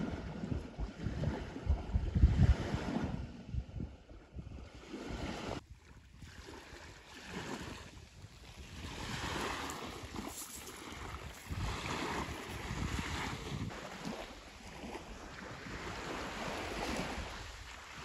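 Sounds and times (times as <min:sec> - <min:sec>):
wind rumbling on microphone: 0:00.0 - 0:18.0
sea surf washing onto beach: 0:06.6 - 0:18.0.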